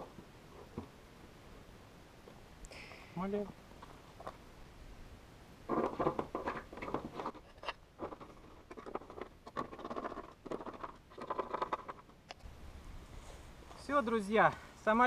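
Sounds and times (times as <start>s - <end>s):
screws scratching and creaking: 5.9s - 12.1s.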